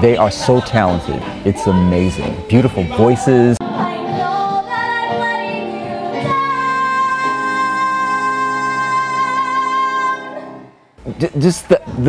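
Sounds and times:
instrumental accompaniment: 0:00.0 - 0:11.1
woman singing: 0:01.1 - 0:10.7.

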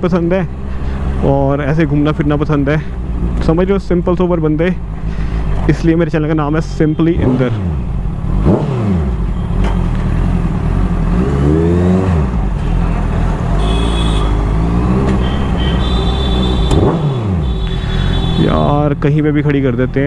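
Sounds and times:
motorcycle engine revving: 0:06.9 - 0:19.1.

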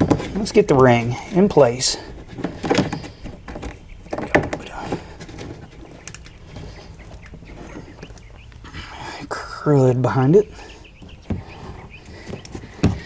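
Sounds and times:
plastic creaking: 0:00.0 - 0:08.8
hard plastic knocking: 0:02.3 - 0:05.7, 0:11.0 - 0:13.0.

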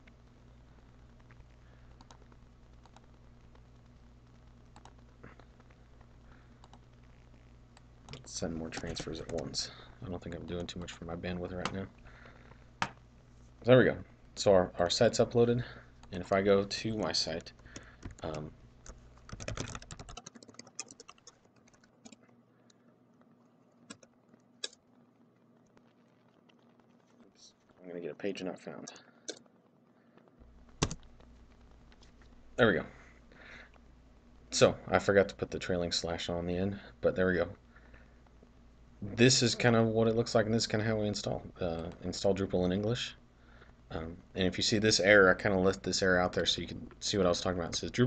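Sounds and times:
steady low hum: 0:00.0 - 0:48.0
keyboard typing: 0:04.8 - 0:05.0, 0:17.4 - 0:22.4, 0:23.8 - 0:24.8, 0:30.8 - 0:31.2.

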